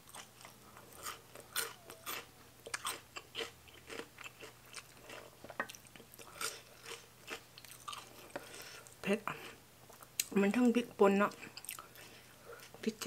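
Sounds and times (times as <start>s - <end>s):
crunchy chewing: 0.0s - 10.3s.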